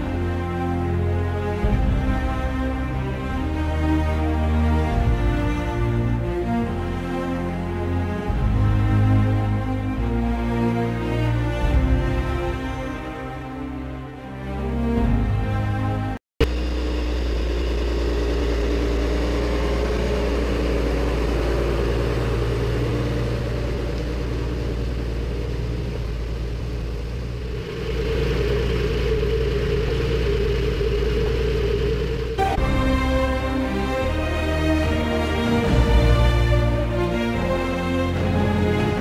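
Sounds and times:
tractor engine running under load: 0.0s - 13.0s, 16.4s - 39.0s
music: 0.0s - 16.2s, 29.8s - 39.0s.

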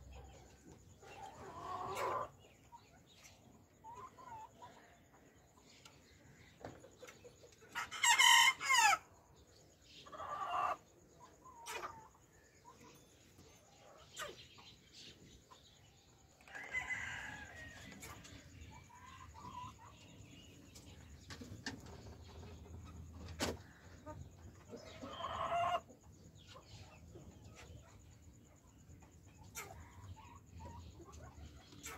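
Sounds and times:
hens clucking: 0.2s - 5.2s, 10.0s - 13.0s, 16.4s - 28.0s, 29.0s - 31.9s
rooster crowing: 16.4s - 18.0s.

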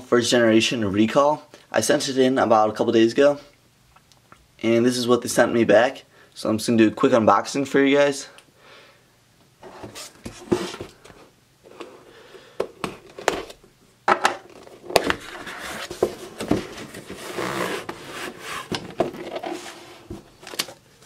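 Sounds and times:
cardboard scraping and rubbing: 9.6s - 11.0s, 14.6s - 20.4s.

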